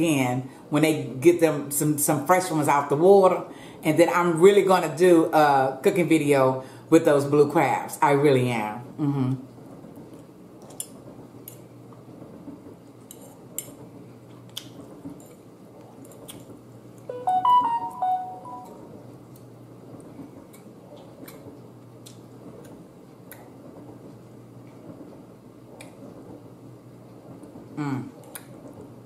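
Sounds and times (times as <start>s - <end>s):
short melodic run of notes: 17.1s - 18.8s.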